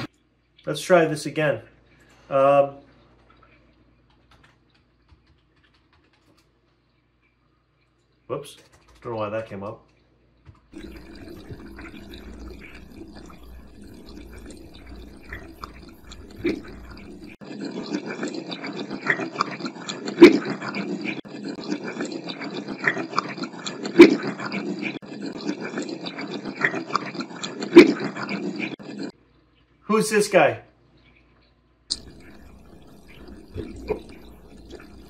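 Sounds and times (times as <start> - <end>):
running tap water: 10.3 - 29.1, 31.9 - 35.0.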